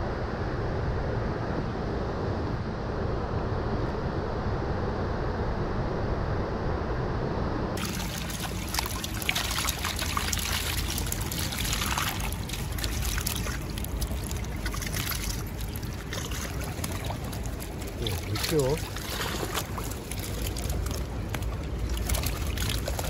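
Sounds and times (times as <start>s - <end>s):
steady low rumble: 0.0s - 23.0s
creek water trickling: 7.8s - 23.0s.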